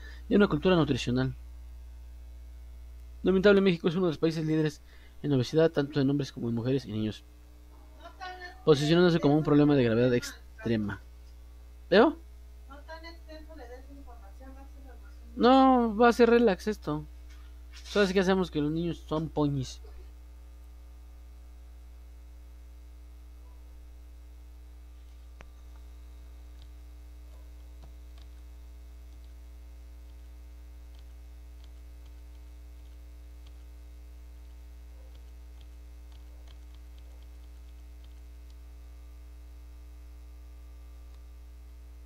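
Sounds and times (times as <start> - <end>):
electrical mains hum: 0.0 - 42.0
faint clicks: 30.0 - 38.6.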